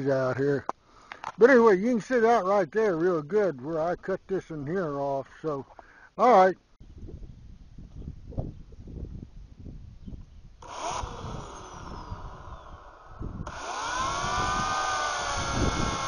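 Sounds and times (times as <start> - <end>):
electric chainsaw cutting wood: 10.6 - 16.0.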